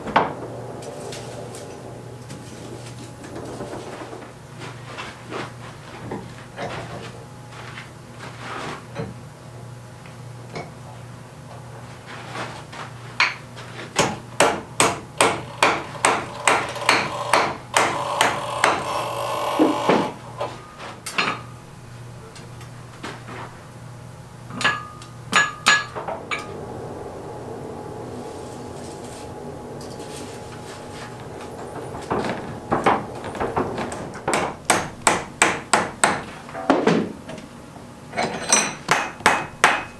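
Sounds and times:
hammer striking hot iron: 14.0s - 20.2s, 24.5s - 26.6s, 28.3s - 36.5s, 38.2s - 39.9s.

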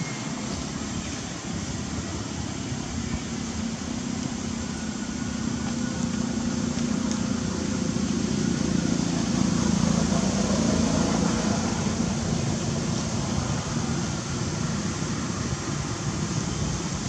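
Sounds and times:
low mechanical rumble: 0.0s - 17.0s.

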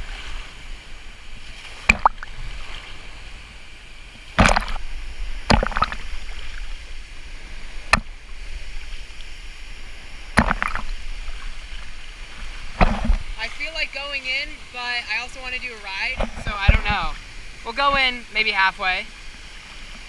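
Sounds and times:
low rumble of water: 0.0s - 20.0s
pool water sloshing: 0.0s - 20.0s
splashes slapping camera: 1.7s - 2.5s, 4.4s - 6.8s, 10.3s - 13.5s.

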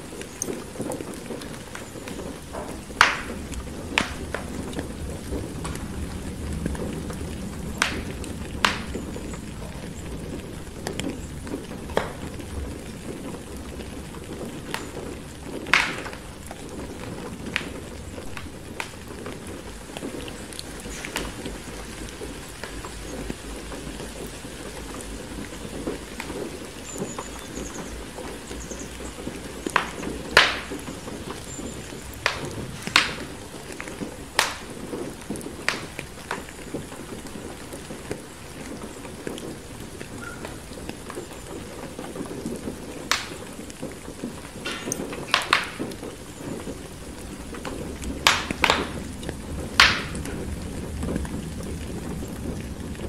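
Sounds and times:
fireplace crackling: 0.0s - 53.0s
rain hiss: 0.0s - 53.0s
low rumble: 2.8s - 14.6s.

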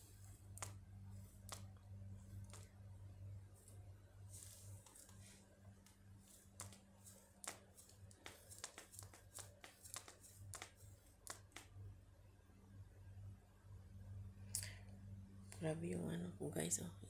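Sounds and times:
low steady hum: 0.0s - 17.0s
faint irregular clicks: 0.2s - 2.8s, 5.8s - 11.8s.

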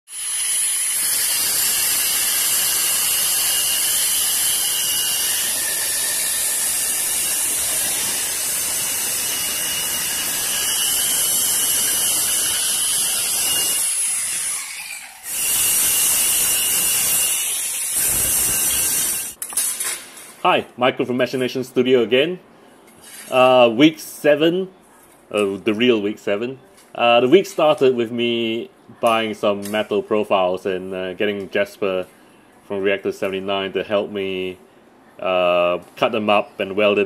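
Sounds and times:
angle grinder grinding steel: 0.1s - 19.4s.

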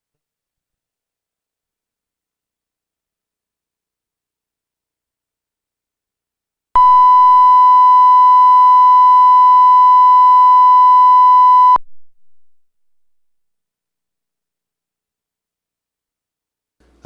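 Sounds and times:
steady test tone beep: 6.8s - 11.9s.

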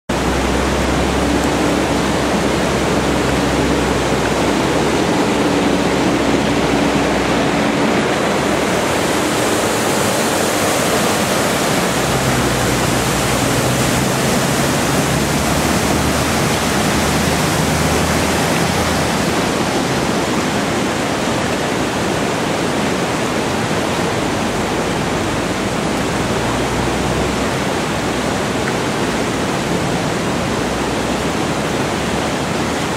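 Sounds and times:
tractor engine droning: 0.1s - 20.9s
floodwater rushing: 0.1s - 32.9s
loud water splash: 0.1s - 32.9s.

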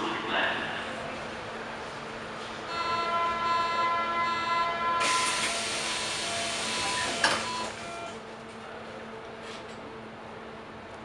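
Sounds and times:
train doors shutting: 2.5s - 8.2s
steady warning tone: 2.7s - 8.2s
compressed air hissing: 5.0s - 6.7s.

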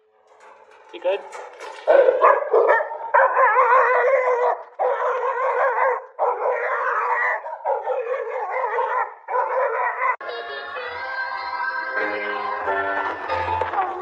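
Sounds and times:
dog howling: 2.1s - 10.2s.

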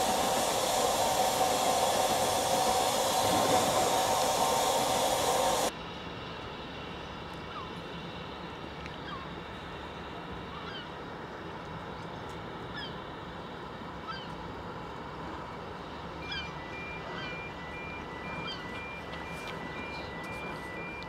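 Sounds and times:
steam locomotive hissing: 0.0s - 5.7s, 16.0s - 21.0s
electronic beep: 16.3s - 21.0s.

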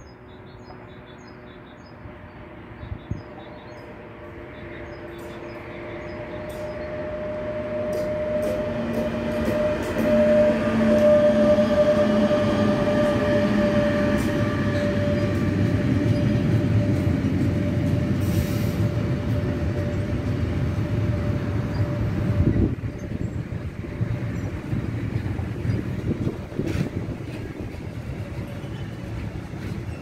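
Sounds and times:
electric locomotive humming: 0.0s - 30.0s
train wheels rumbling: 2.3s - 30.0s.

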